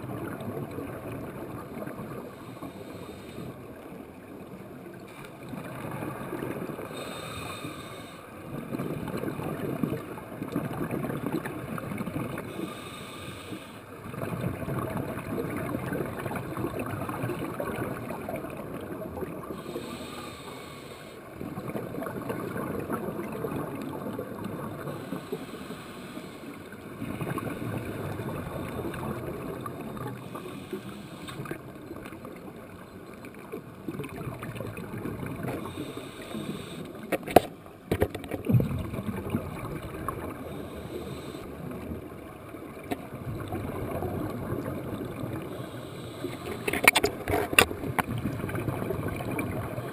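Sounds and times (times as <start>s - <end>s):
diver exhaling bubbles underwater: 38.4s - 41.2s.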